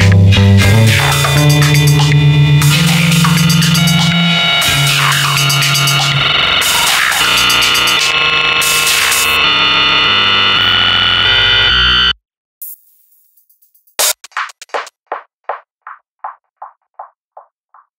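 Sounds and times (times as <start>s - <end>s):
electronic music: 0.0s - 12.8s.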